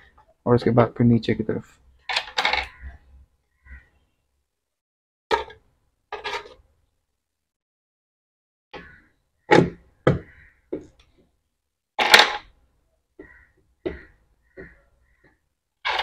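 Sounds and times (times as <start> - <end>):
plastic parts knocking and clicking: 2.1 - 2.8, 13.2 - 16.0.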